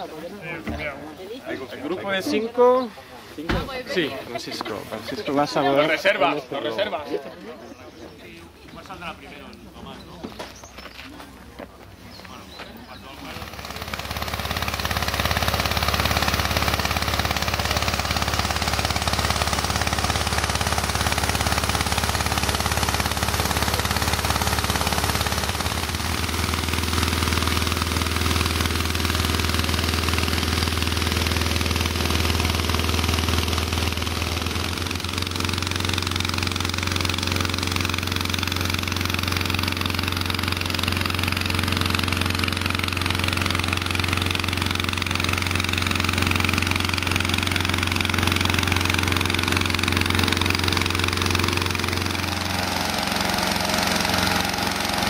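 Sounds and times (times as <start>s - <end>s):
engine-driven inflator fans running: 11.4s - 55.0s.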